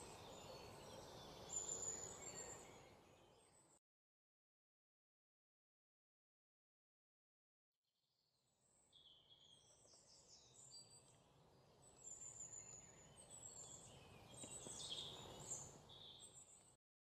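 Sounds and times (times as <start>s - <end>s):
small birds chirping: 0.0s - 3.8s, 8.6s - 16.8s.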